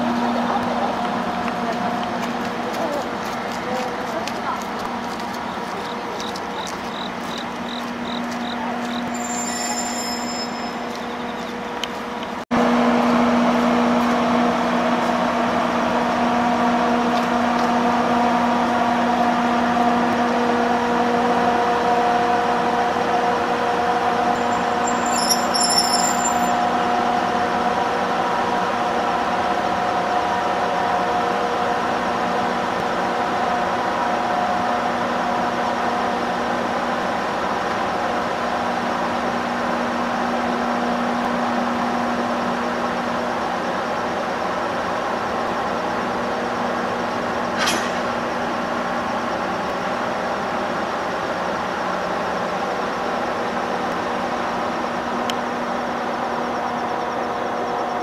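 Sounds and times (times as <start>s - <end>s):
electric locomotive humming: 0.0s - 58.0s
high-pitched squeals: 9.0s - 11.5s, 24.3s - 26.7s.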